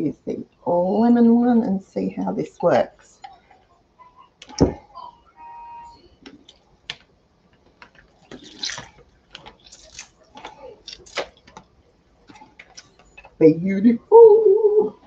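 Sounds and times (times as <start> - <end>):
juice dripping: 6.2 - 13.4.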